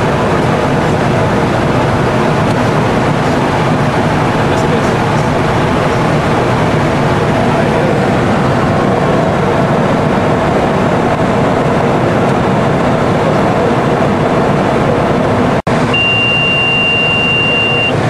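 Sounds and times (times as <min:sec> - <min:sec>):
aircraft airflow and engine rush: 0:00.0 - 0:18.0
steady high beep: 0:15.9 - 0:18.0.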